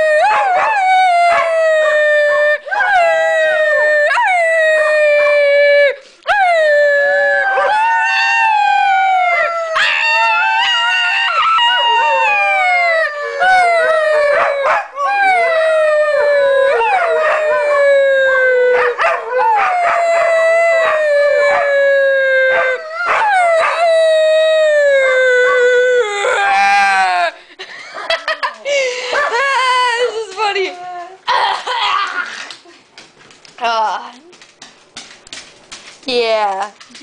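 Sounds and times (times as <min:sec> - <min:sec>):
dog howling: 0:00.0 - 0:27.3.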